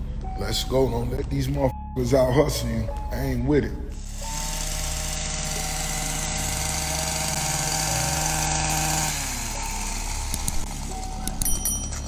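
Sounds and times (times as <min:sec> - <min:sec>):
vehicle engine idling: 0:03.9 - 0:12.0.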